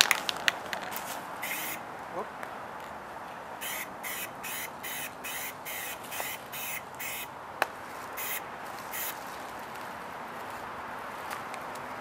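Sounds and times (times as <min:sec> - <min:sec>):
spray paint can hissing: 0:01.4 - 0:01.8, 0:03.6 - 0:07.3, 0:08.2 - 0:09.2.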